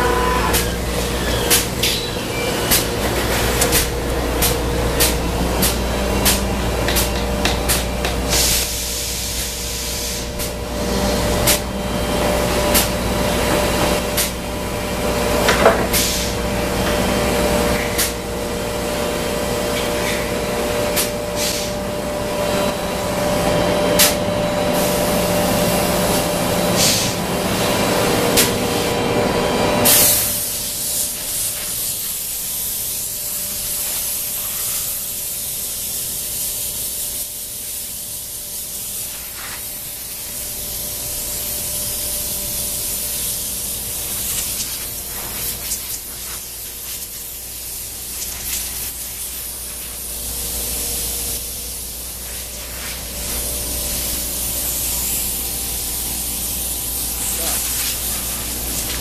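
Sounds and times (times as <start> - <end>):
air blow gun hissing: 0.0 - 7.1, 29.9 - 59.0
cnc router machine hum: 0.0 - 8.3, 21.8 - 29.9.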